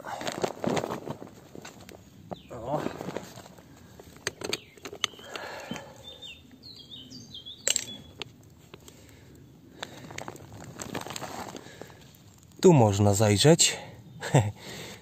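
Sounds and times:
bird chirping: 2.3s - 2.8s, 4.2s - 8.3s
hands scraping through soil: 9.9s - 12.5s.

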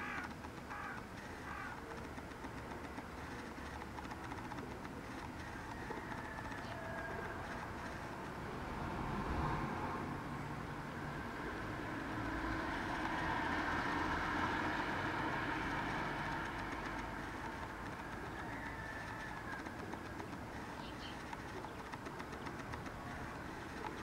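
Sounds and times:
rumble of passing traffic: 0.0s - 24.0s.

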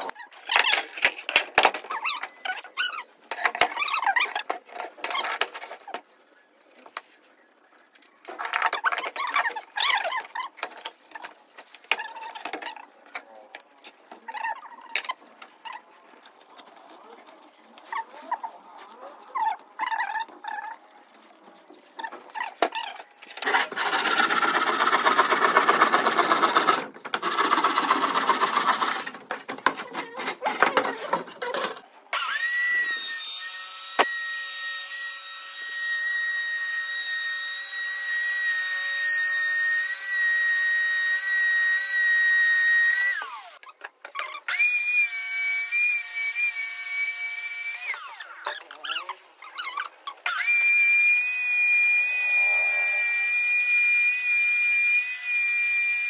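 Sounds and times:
jigsaw cutting plywood: 23.4s - 29.2s
motor high whine: 50.7s - 55.2s.

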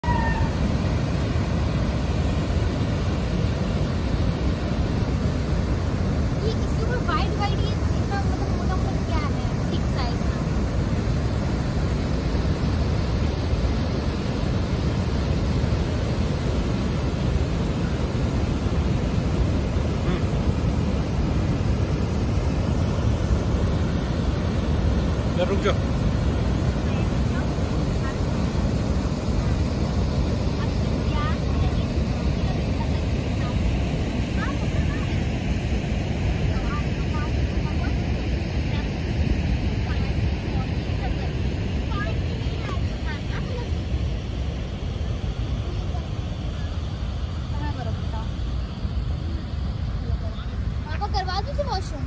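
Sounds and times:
floodwater rushing over weir: 0.0s - 52.0s.

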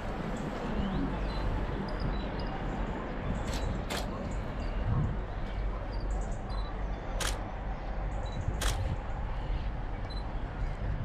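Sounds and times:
steady low rumble: 0.0s - 11.0s
sharp clicks: 7.2s - 7.4s, 8.6s - 8.8s.

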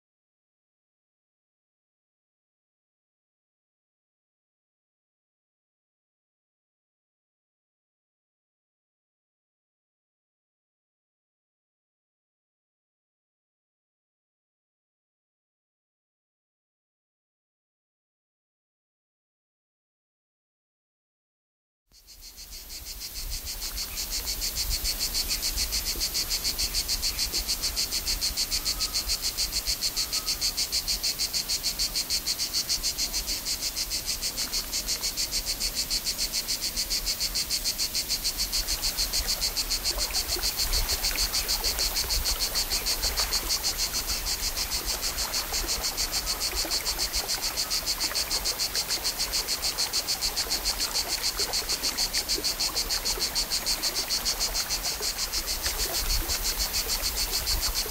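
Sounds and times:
insects buzzing: 22.0s - 57.9s.

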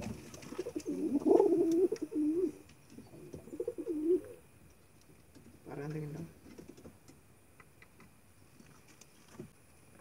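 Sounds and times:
pigeon cooing: 0.4s - 4.4s.

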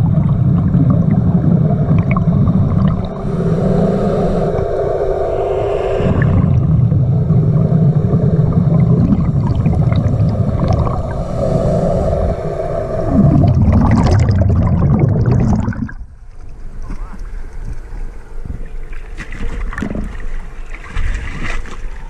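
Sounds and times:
crackling rush of bubbles: 0.0s - 16.2s
muffled underwater rushing: 0.0s - 16.2s.

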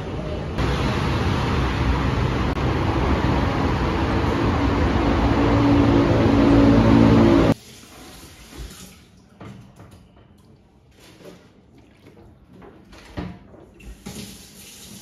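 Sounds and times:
city noise: 0.0s - 7.6s.

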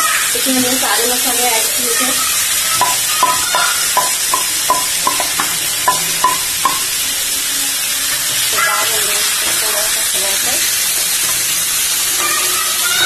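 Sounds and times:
chicken sizzling in hot oil: 0.0s - 13.0s
spatula tapping bowl and pan: 2.7s - 7.0s.

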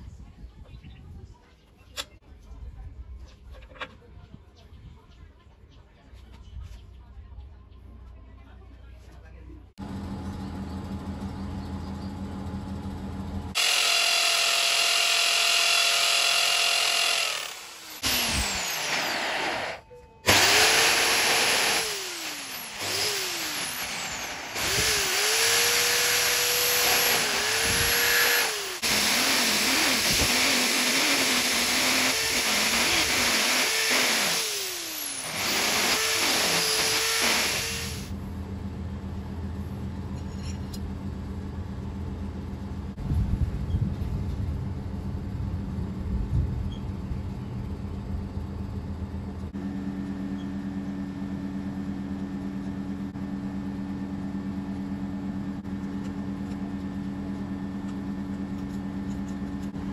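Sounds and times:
electric drill whining: 13.6s - 38.1s.

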